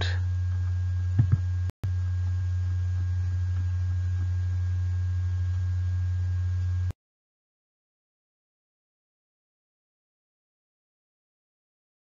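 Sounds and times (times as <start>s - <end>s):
low electrical hum: 0.0s - 7.0s.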